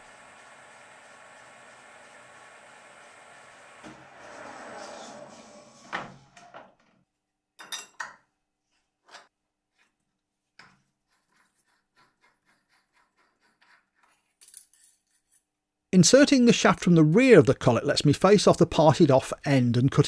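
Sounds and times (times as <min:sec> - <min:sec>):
lathe spindle running: 0:00.0 - 0:06.4.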